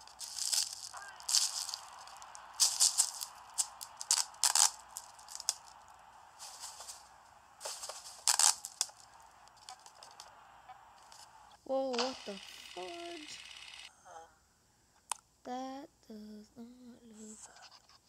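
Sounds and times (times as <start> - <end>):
plastic crinkling and rustling: 0.0 - 10.3
faint steady hiss: 0.0 - 17.5.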